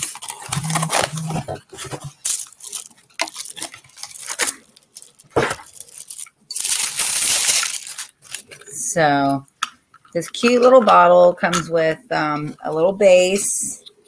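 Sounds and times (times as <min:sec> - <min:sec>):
wrapping tearing: 0:00.0 - 0:08.8
packaging rustling and crinkling: 0:00.0 - 0:08.9.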